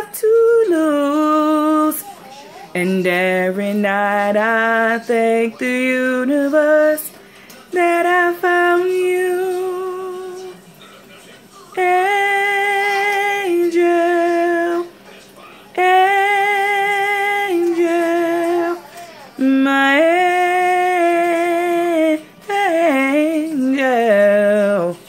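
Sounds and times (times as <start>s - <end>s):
woman singing unaccompanied: 0.0s - 10.6s, 11.7s - 15.0s, 15.7s - 25.0s
breaths: 7.2s - 7.7s.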